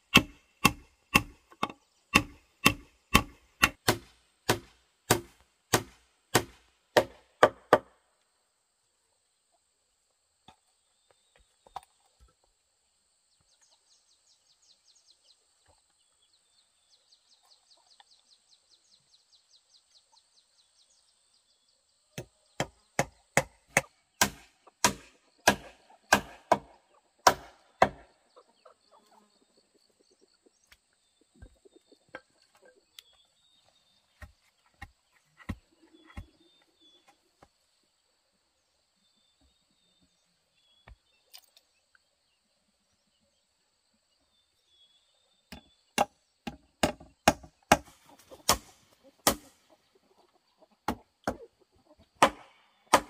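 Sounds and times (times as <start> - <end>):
blade chopping: 0.1 - 7.6, 23.0 - 28.0, 52.2 - 53.0
faint insects chirring: 7.8 - 26.1, 26.7 - 52.9.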